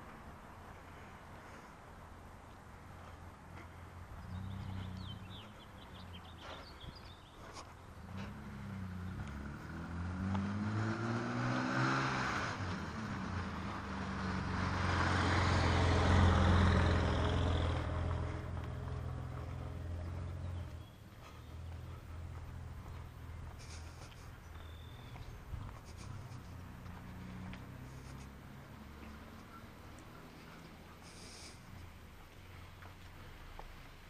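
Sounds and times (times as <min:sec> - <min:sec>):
car engine: 0:07.5 - 0:34.0.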